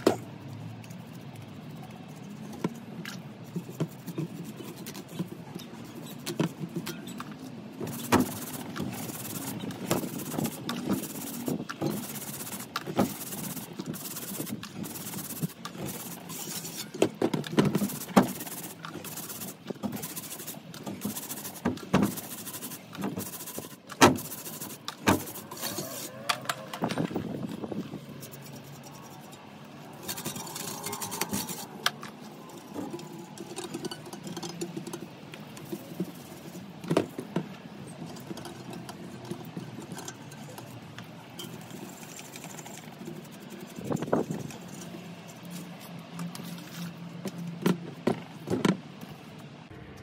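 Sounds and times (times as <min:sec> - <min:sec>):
brush scrubbing wet tyre: 0:00.0 - 0:49.6.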